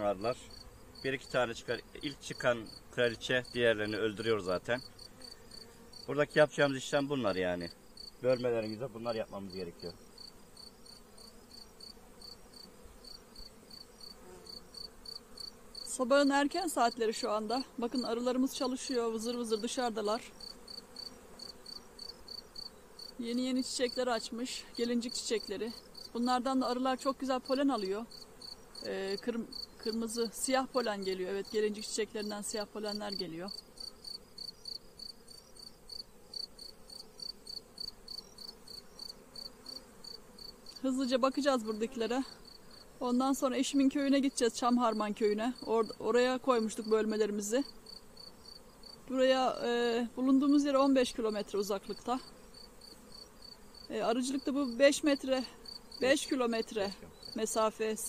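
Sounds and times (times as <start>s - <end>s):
honeybees humming: 0.0s - 58.0s
insect chirping in high pulses: 0.4s - 4.1s, 7.2s - 8.4s, 9.1s - 19.8s, 20.4s - 49.6s.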